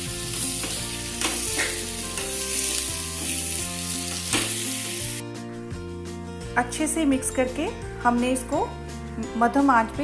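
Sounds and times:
meat sizzling in frying pan: 0:00.0 - 0:05.2.

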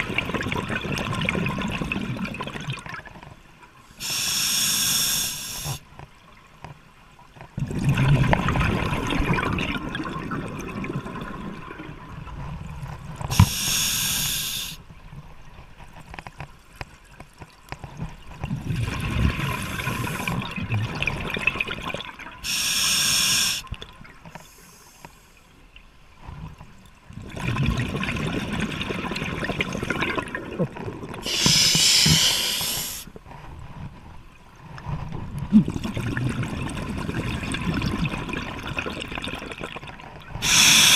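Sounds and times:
regulator inhalation hiss: 0:04.0 - 0:05.8, 0:13.3 - 0:14.8, 0:22.4 - 0:23.7, 0:31.2 - 0:33.1, 0:40.4 - 0:40.9.

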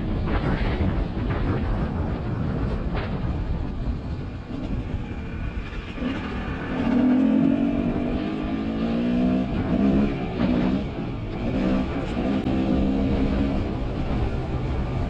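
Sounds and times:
dirt bike engine revving: 0:06.0 - 0:13.8.

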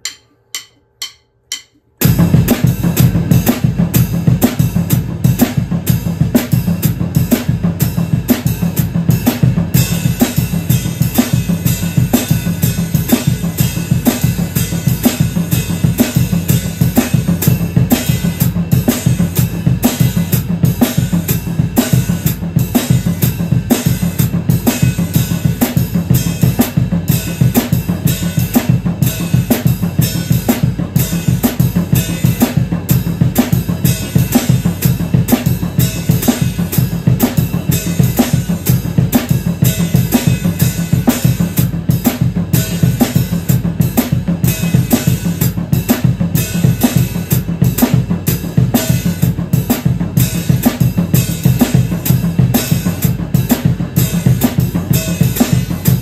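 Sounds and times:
soft count-in taps: 0:00.0 - 0:01.9
drum kit groove: 0:00.0 - 0:56.0.

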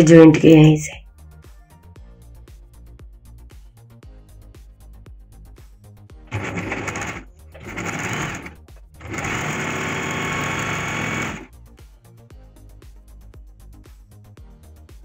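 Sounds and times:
sewing machine stitching: 0:06.3 - 0:11.5.

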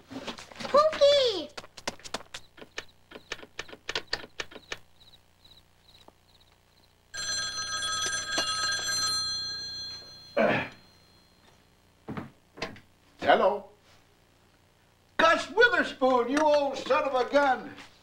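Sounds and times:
telephone bell ringing: 0:07.2 - 0:11.6.

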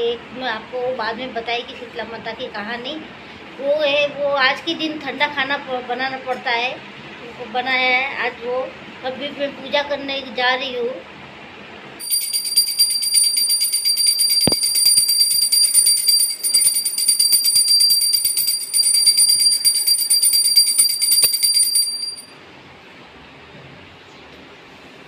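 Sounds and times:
hand bell ringing rapidly: 0:12.0 - 0:22.3.

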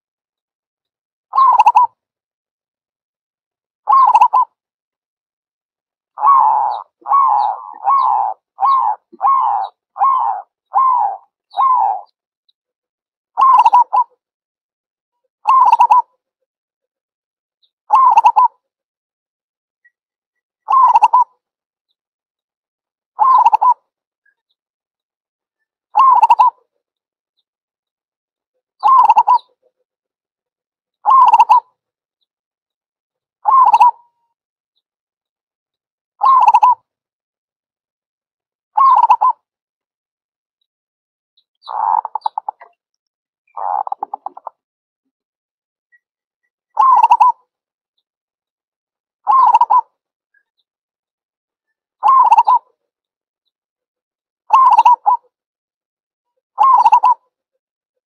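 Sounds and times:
dove cooing: 0:03.9 - 0:04.4, 0:06.2 - 0:12.1, 0:13.4 - 0:14.1, 0:15.5 - 0:16.0, 0:20.7 - 0:21.3, 0:26.0 - 0:26.5, 0:28.8 - 0:29.4, 0:31.1 - 0:31.6, 0:38.8 - 0:39.3, 0:43.6 - 0:44.5, 0:46.8 - 0:47.4, 0:49.3 - 0:49.8, 0:52.0 - 0:52.6, 0:54.5 - 0:55.2.

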